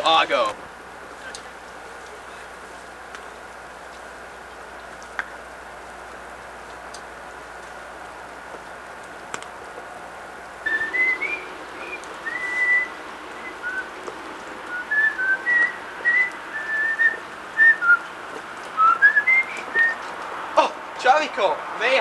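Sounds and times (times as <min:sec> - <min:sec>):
person whistling a tune: 0:10.7 - 0:13.8, 0:14.7 - 0:18.0, 0:18.8 - 0:20.0.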